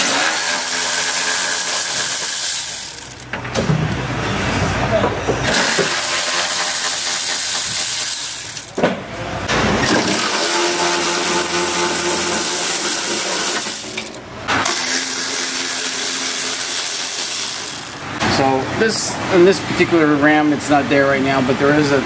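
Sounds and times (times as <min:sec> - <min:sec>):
cordless ratchet running: 0:00.2 - 0:03.2, 0:05.5 - 0:08.8, 0:09.9 - 0:14.2, 0:15.1 - 0:18.1.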